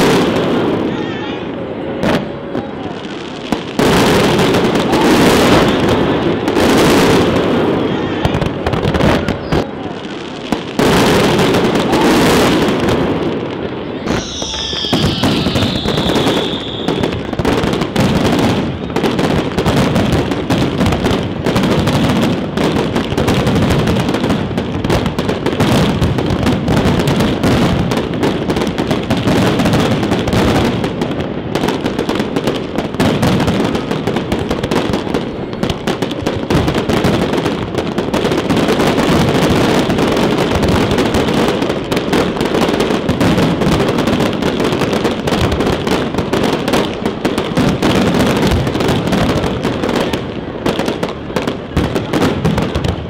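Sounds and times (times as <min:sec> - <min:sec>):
fireworks bursts and bangs: 0:00.0 - 0:53.0
falling firework whistle: 0:13.7 - 0:19.0.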